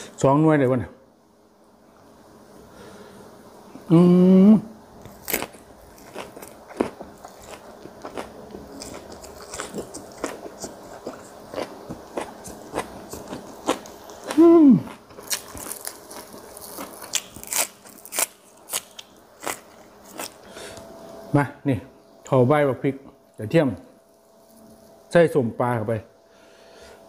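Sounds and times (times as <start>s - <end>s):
person humming: 3.7s - 4.8s, 14.2s - 15.0s
wet crunchy chewing: 5.0s - 20.5s.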